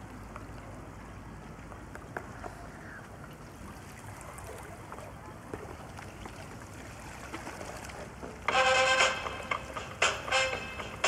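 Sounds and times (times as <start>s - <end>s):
water splashes and trickles: 0.0s - 11.0s
waves lapping against rocks: 1.8s - 8.5s.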